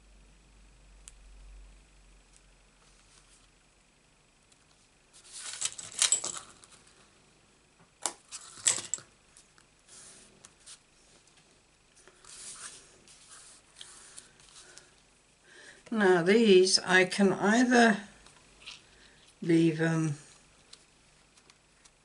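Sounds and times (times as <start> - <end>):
paper card rustling: 5.2 - 6.8.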